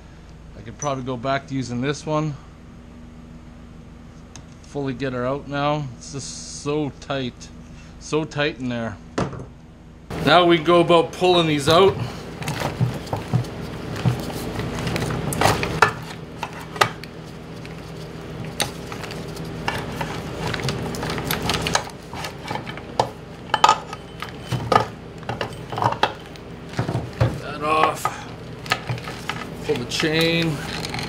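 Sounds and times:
metal parts clinking and clattering: 28.8 - 31.0.

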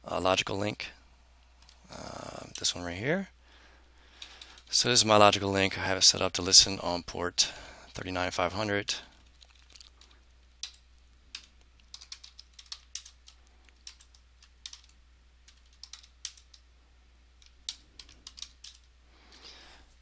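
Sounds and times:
computer keyboard typing: 9.4 - 16.6, 17.4 - 18.9.

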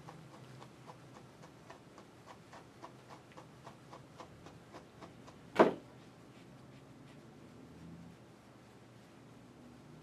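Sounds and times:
brush raking through dog fur: 5.9 - 10.0.

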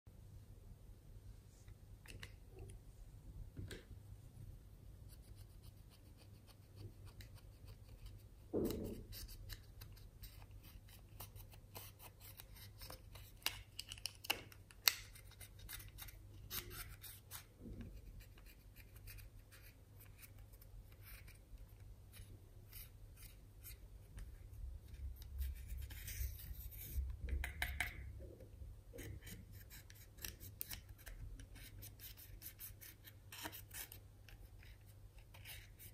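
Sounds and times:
plastic applicator scratching powder: 5.1 - 23.8, 28.9 - 35.9
knock: 8.5 - 9.0.

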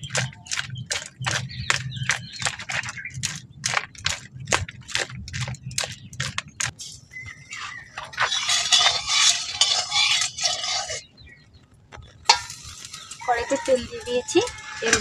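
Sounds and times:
metal spatula scraping a pan: 7.4 - 11.1, 12.2 - 15.0.

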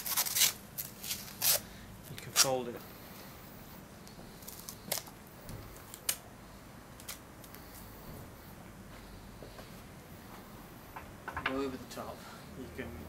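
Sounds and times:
masking tape ripping: 0.0 - 2.6, 4.4 - 6.3, 7.0 - 7.6.

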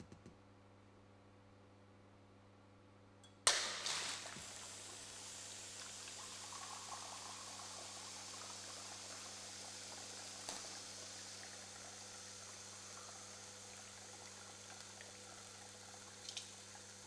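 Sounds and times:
rushing liquid-like hiss: 3.5 - 13.6.

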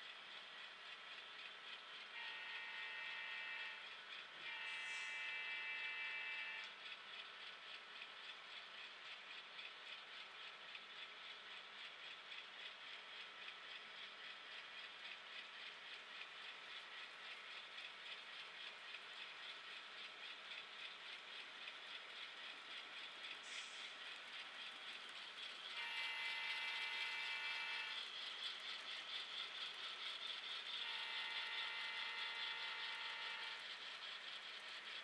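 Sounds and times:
model train wheels clicking: 0.0 - 35.0
multi-tone train horn: 2.1 - 6.8, 25.8 - 28.0, 30.7 - 33.7.

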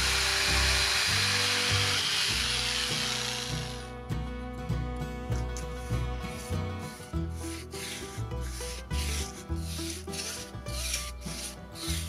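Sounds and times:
background music with bass line: 0.0 - 12.0
paintbrush swishing on wood: 5.6 - 12.0.

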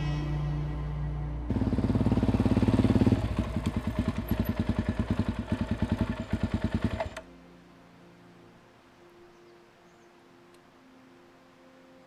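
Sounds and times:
motorcycle engine idling: 1.5 - 7.2.

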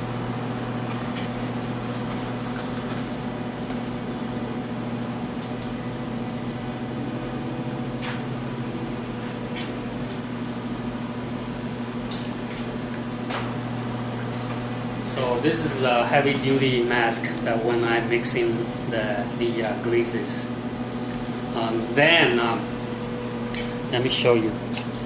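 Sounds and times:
low room hum: 0.0 - 25.0
respirator clicks and rustles: 0.7 - 10.5, 12.0 - 19.8.

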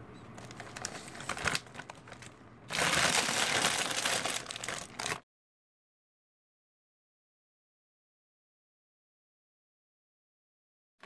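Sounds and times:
foil chip bag crinkling: 0.4 - 5.2.

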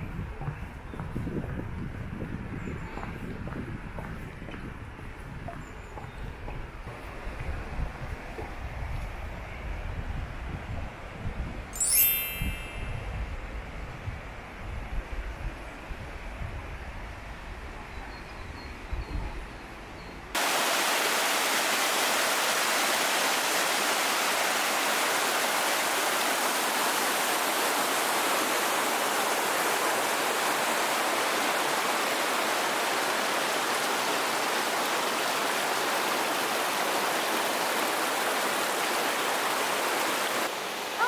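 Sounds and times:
stream rushing over rocks: 20.4 - 41.0.

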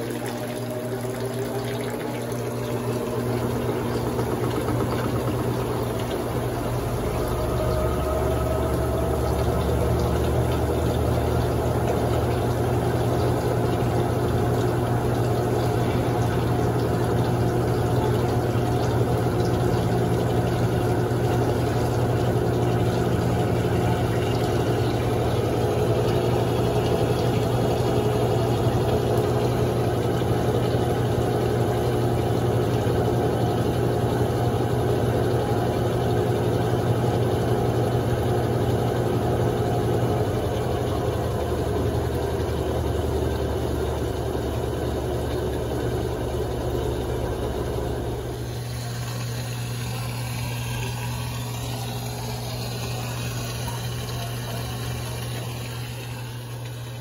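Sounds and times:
washing machine spinning: 0.0 - 57.0.

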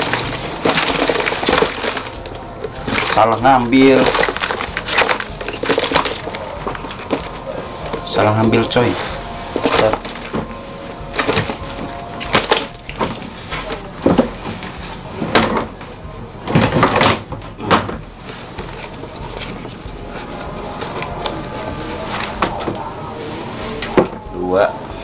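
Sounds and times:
rapid high-pitched chirping: 0.0 - 16.5.

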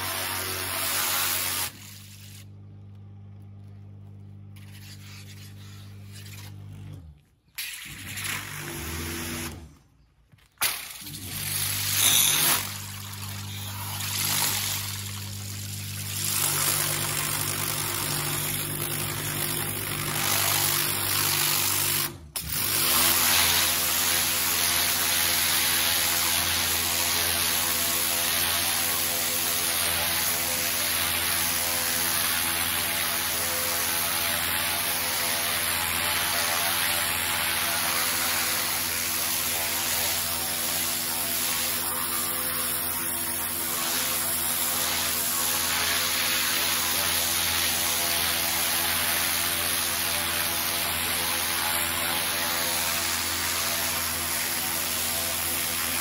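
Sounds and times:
water jet spraying: 0.0 - 2.4
pressure washer spraying: 0.0 - 2.6, 4.5 - 6.7, 7.6 - 9.7, 10.6 - 56.0.

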